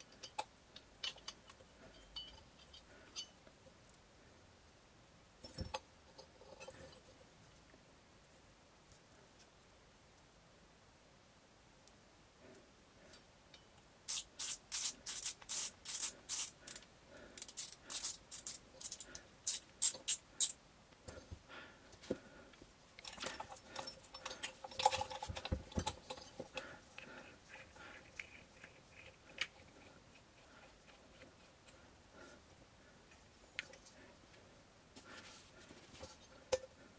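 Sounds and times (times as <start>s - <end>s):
tools rattling and knocking: 23.0s - 26.6s.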